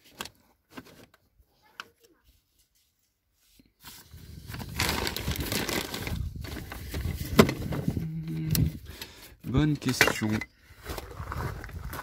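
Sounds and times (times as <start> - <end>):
crinkly rustling handling noise: 0.0 - 8.1.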